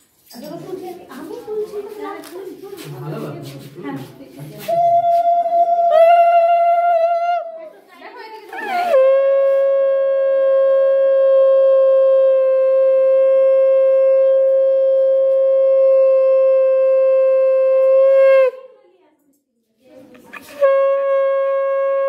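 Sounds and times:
conch shell blown: 4.7s - 7.5s, 8.6s - 18.6s, 20.3s - 22.0s.

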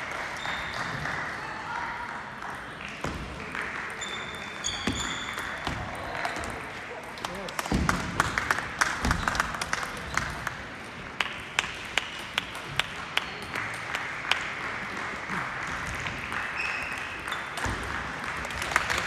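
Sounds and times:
hum of busy hall: 0.0s - 19.0s.

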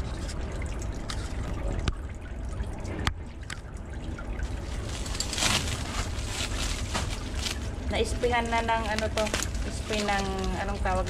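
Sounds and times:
plastic wrap crinkling: 4.5s - 11.0s.

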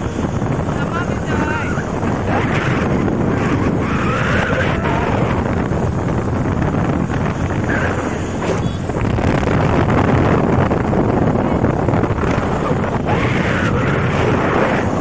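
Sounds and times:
scooter road noise: 0.0s - 15.0s
wind buffeting microphone: 0.0s - 15.0s.

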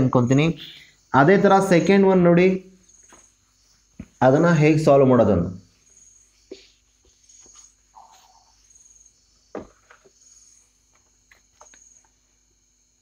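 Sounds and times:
cricket chirping: 0.0s - 13.0s
duster rubbing on whiteboard: 6.4s - 8.5s.

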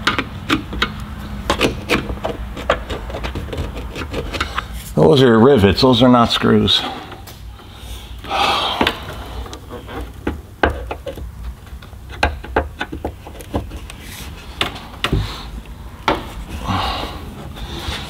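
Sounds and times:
hand tools clicking and knocking: 0.0s - 4.7s, 8.7s - 17.0s.

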